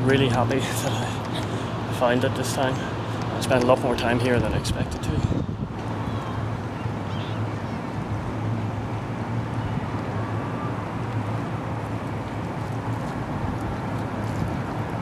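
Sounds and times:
wind rumbling on microphone: 3.2s - 15.0s.

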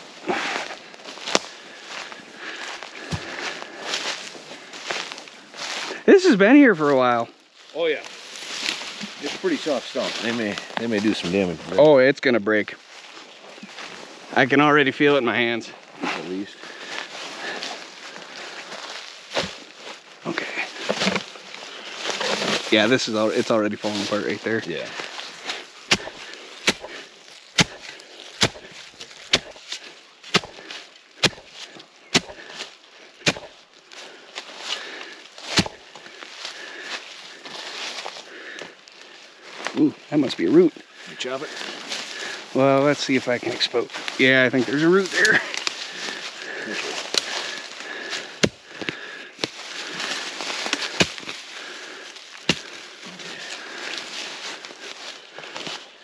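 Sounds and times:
digging tool striking ground: 20.4s - 21.3s, 25.4s - 33.6s, 35.4s - 35.9s, 44.8s - 51.6s, 52.3s - 53.3s.

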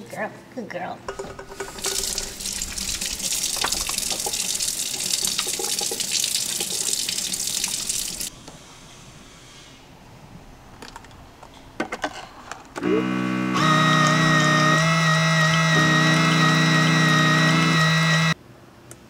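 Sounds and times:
faucet water splashing in sink: 1.1s - 8.3s.

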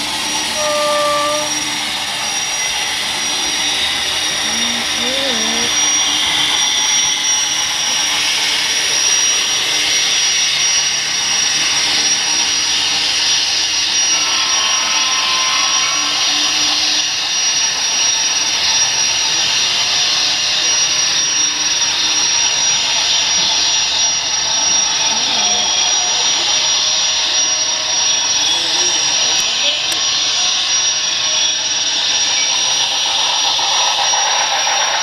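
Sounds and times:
model train wheels whirring on rail: 0.0s - 35.0s
thin high whine: 0.0s - 35.0s.

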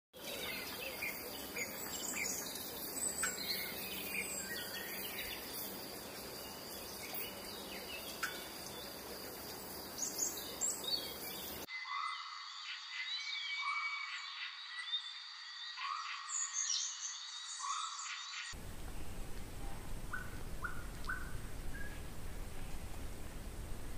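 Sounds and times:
bird chirps: 0.2s - 9.1s, 9.9s - 18.6s, 19.6s - 22.1s
high insect drone: 0.3s - 11.7s
whistled bird calls: 10.2s - 18.5s, 20.1s - 22.0s.

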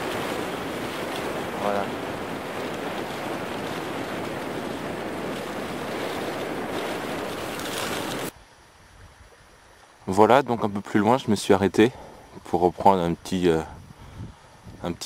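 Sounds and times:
skis sliding over snow: 0.0s - 8.3s
wind buffeting microphone: 0.0s - 9.4s, 13.6s - 15.0s
faint hiss: 4.9s - 15.0s.

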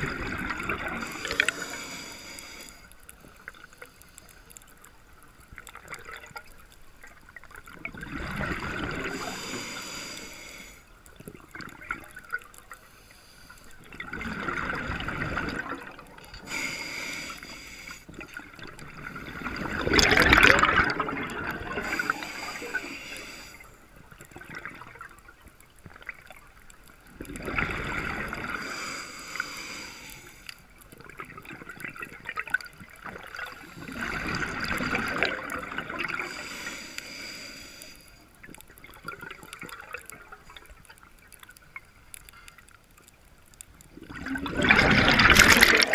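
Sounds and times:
underwater regulator exhaust bubbles: 0.0s - 2.6s, 7.6s - 10.2s, 13.8s - 23.5s, 27.2s - 30.0s, 31.0s - 37.2s, 44.0s - 45.9s.

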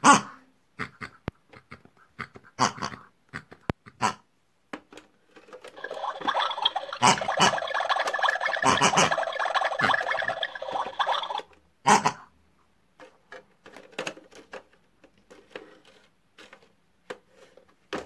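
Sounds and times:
comic pig-like vocal noises: 0.0s - 4.2s, 5.9s - 12.3s.

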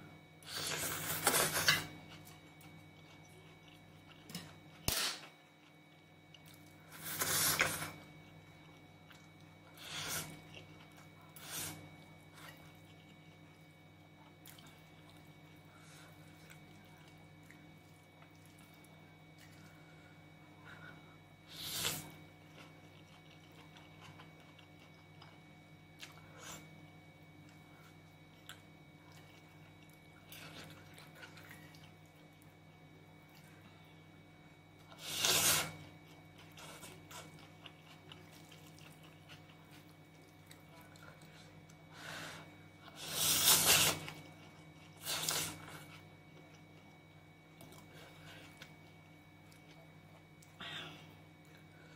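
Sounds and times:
soft chewing: 0.5s - 51.9s
wet chewing mouth sounds: 34.9s - 41.8s.

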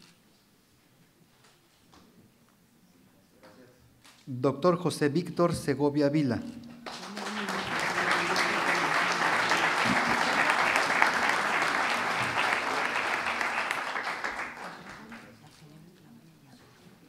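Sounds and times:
audience applauding: 6.8s - 15.4s.

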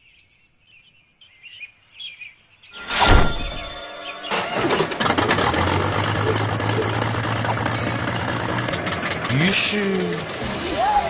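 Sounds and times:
faint birds chirping: 0.0s - 4.8s
sudden loud hit: 2.8s - 5.0s.

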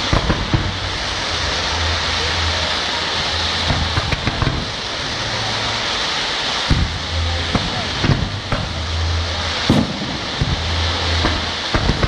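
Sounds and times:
sharp firework pops: 0.0s - 1.0s, 3.6s - 4.8s, 6.6s - 9.0s, 9.6s - 12.0s
fireworks crackling and hissing: 0.0s - 12.0s.

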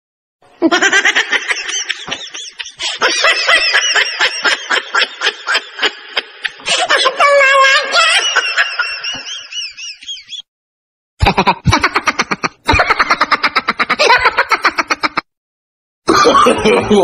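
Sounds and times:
cartoon giggling sound effect: 11.2s - 15.3s.

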